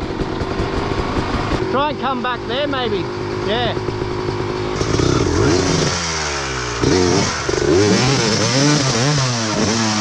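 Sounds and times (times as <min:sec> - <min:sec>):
tyre spinning on loose dirt: 0:00.0 - 0:01.6
dirt bike engine revving: 0:00.0 - 0:10.0.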